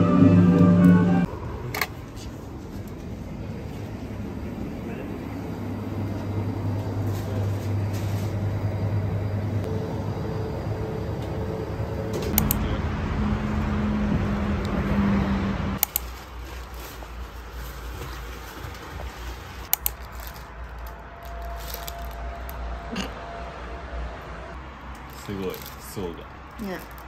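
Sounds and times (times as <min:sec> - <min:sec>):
street traffic: 0:00.0 - 0:27.0
vehicle engine hum: 0:00.0 - 0:27.0
sharp clicks: 0:12.2 - 0:12.6.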